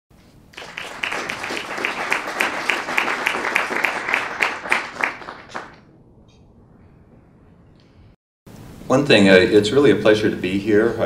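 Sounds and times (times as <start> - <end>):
audience applauding: 0.5 - 5.8.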